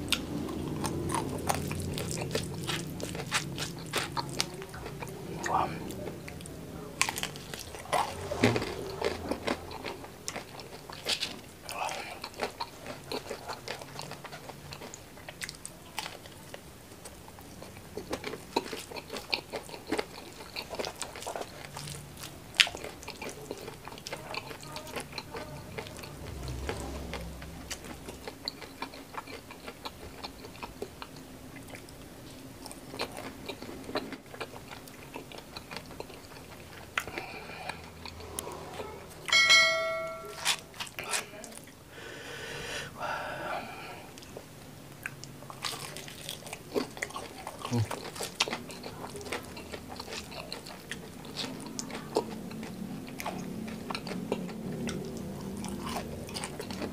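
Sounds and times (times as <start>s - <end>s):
crunching and chewing fried food: 0.0s - 39.3s, 40.4s - 41.8s, 43.6s - 56.9s
short bright chime: 39.3s - 40.6s.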